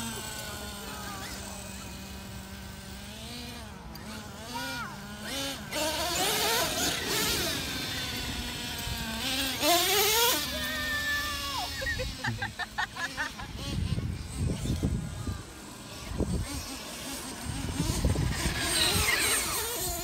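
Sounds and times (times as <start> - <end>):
toy truck motors whining: 0.0 - 20.0.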